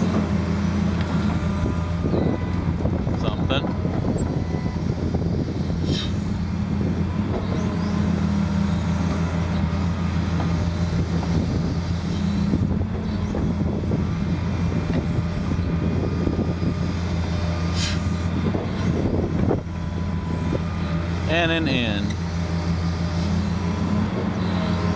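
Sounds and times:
excavator diesel engine droning: 0:00.0 - 0:24.9.

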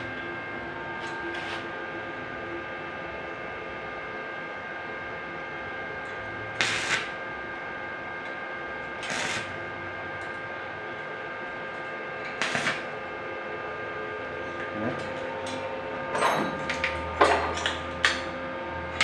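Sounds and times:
steady hum: 0:00.0 - 0:19.0
welding arc bursts: 0:06.5 - 0:07.2, 0:09.0 - 0:09.6, 0:12.4 - 0:13.0.

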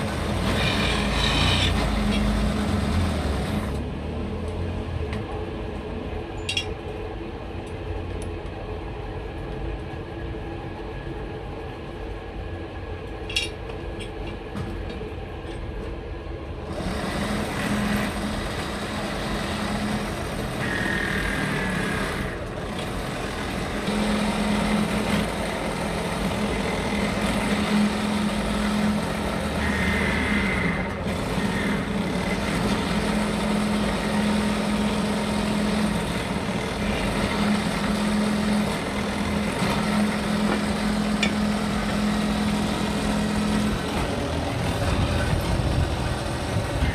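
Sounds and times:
drill press motor hum: 0:00.0 - 0:03.8, 0:16.6 - 0:46.9
drill bit squealing: 0:00.4 - 0:02.4, 0:20.6 - 0:22.1, 0:29.5 - 0:31.9.

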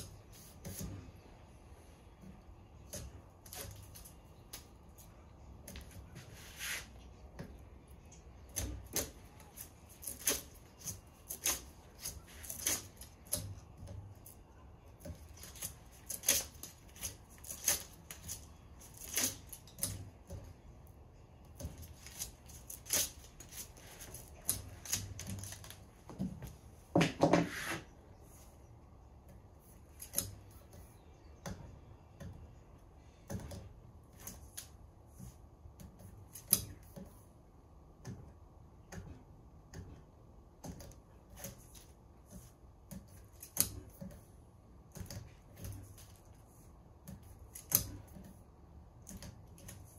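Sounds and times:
tape rustling: 0:08.1 - 0:20.5, 0:21.5 - 0:27.9.

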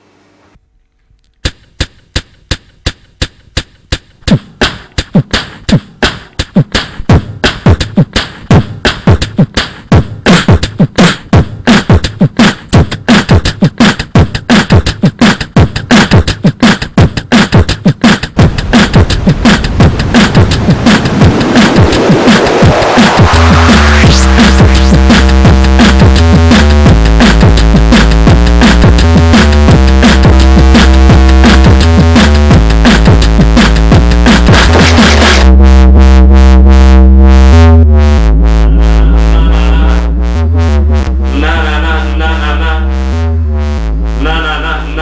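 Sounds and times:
beatboxing clicks: 0:01.2 - 0:35.5
kick-drum thumps: 0:01.4 - 0:35.4.

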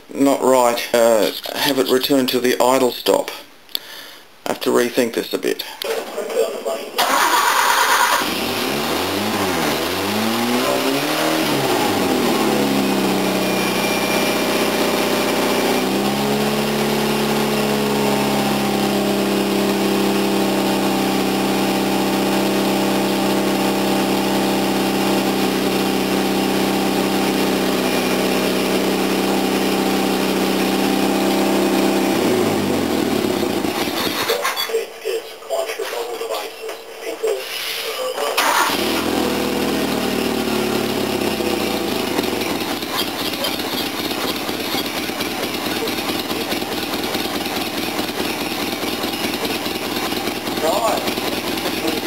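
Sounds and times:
car engine running: 0:07.0 - 0:34.3, 0:38.4 - 0:52.0.

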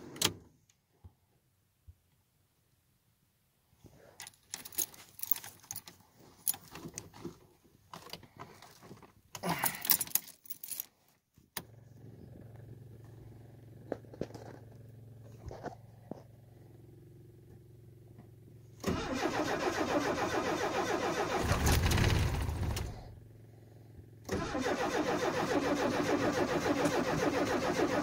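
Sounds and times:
car keys jangling: 0:04.2 - 0:07.1, 0:09.4 - 0:10.9.

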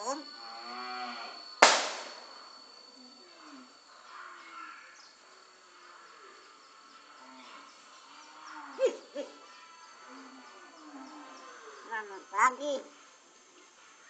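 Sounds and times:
high insect-like whine: 0:00.0 - 0:14.0
sharp loud crack: 0:01.6 - 0:02.4.

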